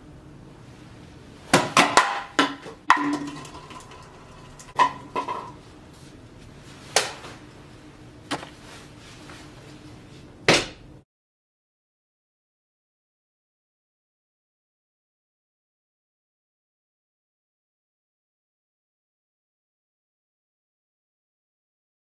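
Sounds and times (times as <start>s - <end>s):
hard objects knocking and clanking: 1.6s - 5.6s.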